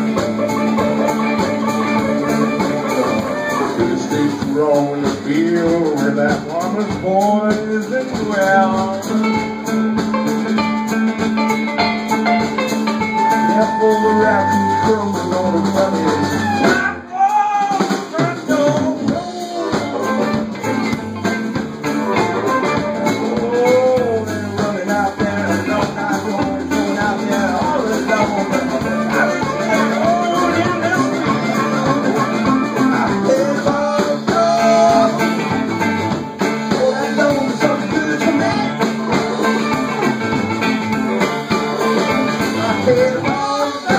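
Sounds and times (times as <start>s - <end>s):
harmonica: 0.0s - 7.7s, 8.3s - 16.9s, 17.8s - 43.9s
person singing: 0.0s - 9.7s, 12.0s - 21.0s, 21.9s - 40.4s, 41.1s - 43.9s
banjo: 0.0s - 43.9s
drum kit: 0.0s - 43.9s
electric guitar: 0.0s - 43.9s.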